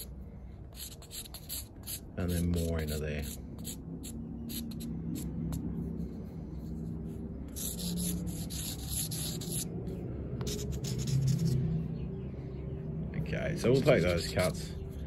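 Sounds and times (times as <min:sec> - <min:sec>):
marker pen scratching on metal: 0:00.0 - 0:11.6, 0:13.6 - 0:15.0
steady low hum: 0:00.0 - 0:15.0.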